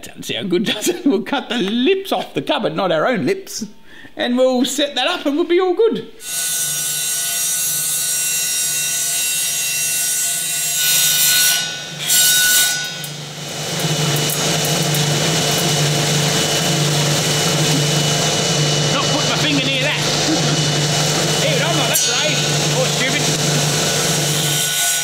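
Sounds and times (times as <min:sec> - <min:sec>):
saw blade cutting wood: 0:06.2 - 0:25.0
table saw motor humming: 0:12.8 - 0:25.0.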